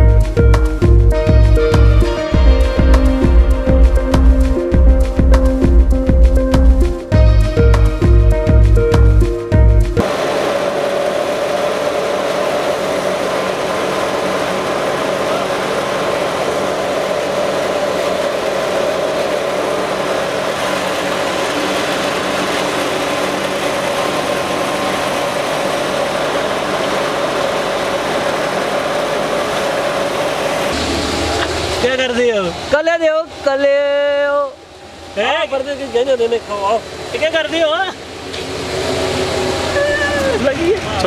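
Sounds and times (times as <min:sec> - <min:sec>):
background music: 0:00.0 - 0:10.2
wheat thresher droning: 0:00.0 - 0:41.0.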